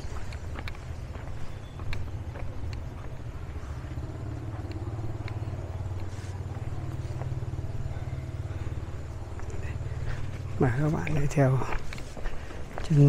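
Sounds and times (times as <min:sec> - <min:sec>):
engine running low rumble: 0:00.0 - 0:13.0
faint clicks: 0:03.8 - 0:06.1.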